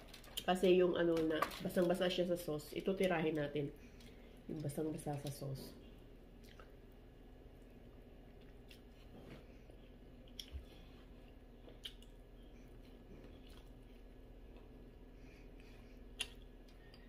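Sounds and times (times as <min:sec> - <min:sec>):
person chewing: 0:06.3 - 0:06.9, 0:07.6 - 0:09.1, 0:09.7 - 0:17.0.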